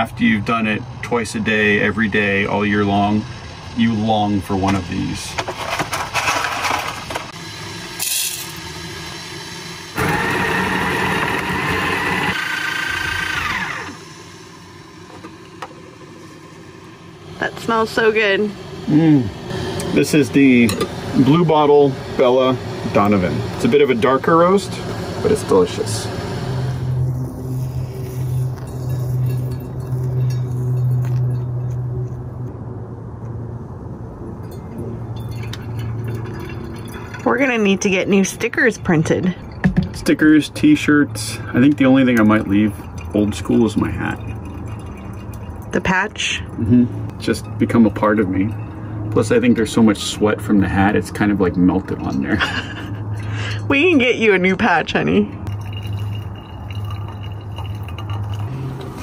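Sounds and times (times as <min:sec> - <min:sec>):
coffee grinder motor whirring: 0:05.5 - 0:30.4
steady low hum: 0:10.8 - 0:54.5
water trickling onto coffee grounds: 0:27.1 - 0:31.8, 0:35.1 - 0:38.8, 0:39.4 - 0:52.2, 0:55.4 - 0:59.0.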